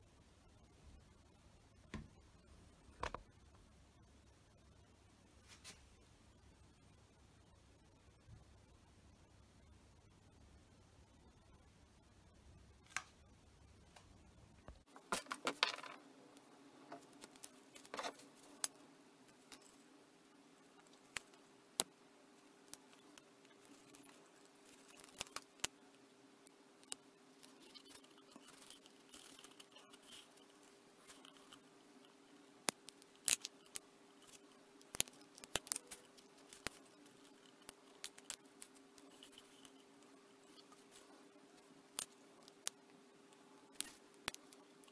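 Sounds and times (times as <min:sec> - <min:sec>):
faint steady hum: 0:00.0 - 0:44.9
hands handling vinyl and paper: 0:16.9 - 0:18.8, 0:22.7 - 0:25.8, 0:26.8 - 0:31.6, 0:32.7 - 0:42.8.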